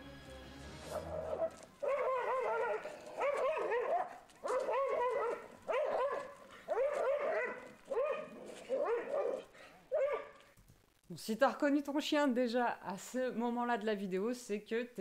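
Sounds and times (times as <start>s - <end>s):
dog barking and yelping: 0.9s - 10.4s.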